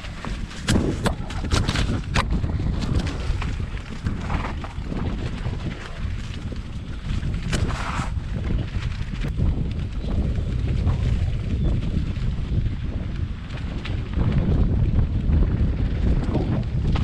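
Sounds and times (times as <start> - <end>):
bike knocks and rattles: 0.0 - 17.0
wind buffeting microphone: 0.0 - 17.0.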